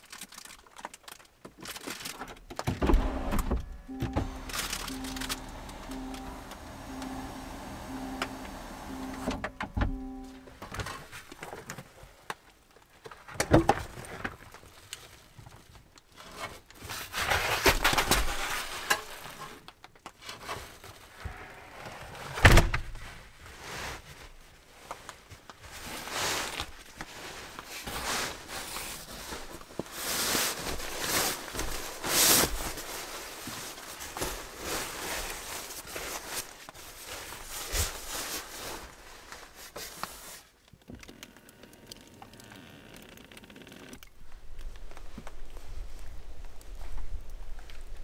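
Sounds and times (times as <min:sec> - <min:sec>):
bedding rustling and swishing: 0:22.9 - 0:40.4.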